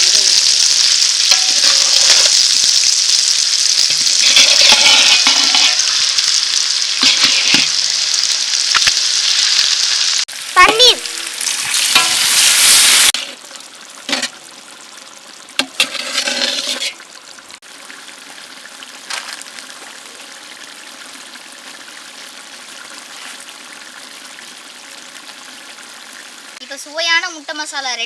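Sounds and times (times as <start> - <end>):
gravy bubbling and sizzling: 0.0 - 28.0
spatula scraping a pan: 4.0 - 6.1, 7.0 - 7.8, 11.4 - 13.5, 14.1 - 14.4, 15.6 - 17.1.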